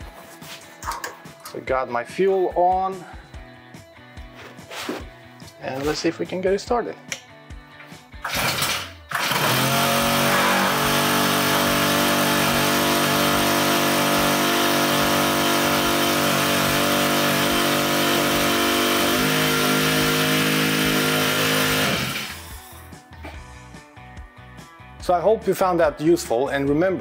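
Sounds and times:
small engine running: 0:08.2 - 0:22.9.

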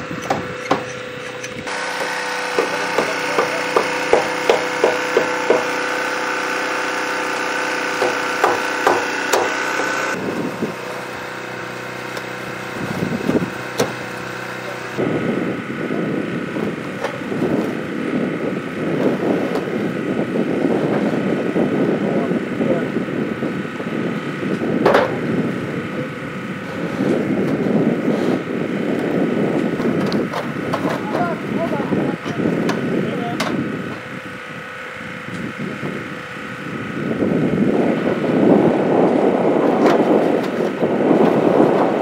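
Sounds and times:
steady mechanical hum: 0:00.0 - 0:42.0
hammer striking wood: 0:00.2 - 0:01.0, 0:01.8 - 0:05.9, 0:08.0 - 0:09.8, 0:13.7 - 0:14.0.

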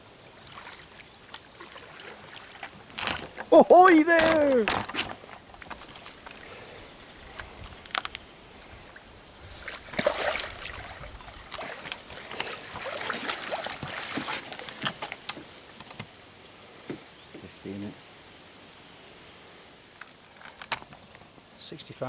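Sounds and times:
water splashing: 0:00.0 - 0:06.8, 0:08.8 - 0:15.4.

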